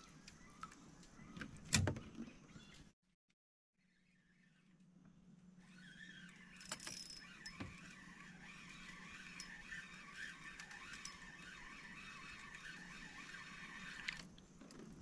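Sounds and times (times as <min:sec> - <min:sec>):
chorus of animal calls: 0:05.6 - 0:14.2.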